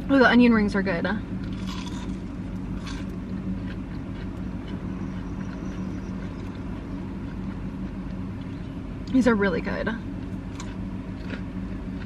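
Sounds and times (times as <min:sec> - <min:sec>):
low engine hum: 0:00.0 - 0:12.0
chewing crunchy food: 0:01.3 - 0:08.8, 0:10.0 - 0:12.0.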